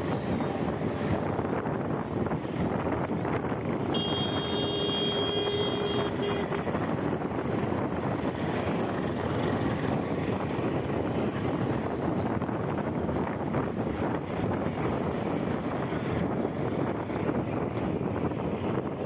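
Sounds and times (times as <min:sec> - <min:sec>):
bicycle road noise on concrete: 0:00.0 - 0:19.0
wind rush on microphone: 0:00.0 - 0:19.0
vehicle horn honking: 0:03.9 - 0:06.6.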